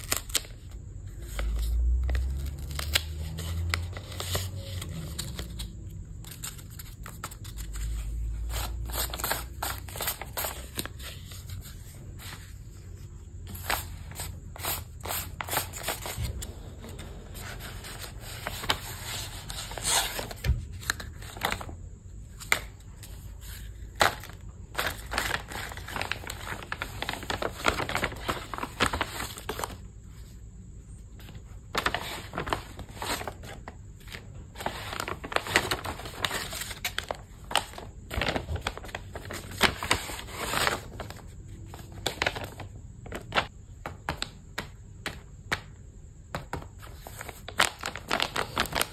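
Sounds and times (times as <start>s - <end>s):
wrapping material crinkling: 24.0s - 29.8s, 31.8s - 33.6s, 34.6s - 41.2s, 47.1s - 48.9s.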